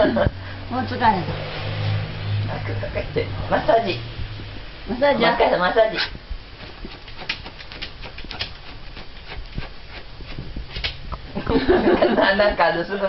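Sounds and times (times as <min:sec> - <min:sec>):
rustling: 0:04.0 - 0:11.6
dog paws patting on body: 0:06.1 - 0:11.3.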